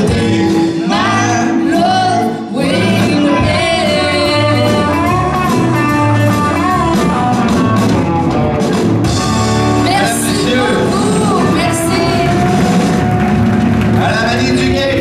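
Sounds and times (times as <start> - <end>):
drums: 0.0 - 15.0
electric guitar: 0.0 - 15.0
keyboard: 0.0 - 15.0
woman singing into microphone: 0.8 - 7.4, 9.8 - 12.5.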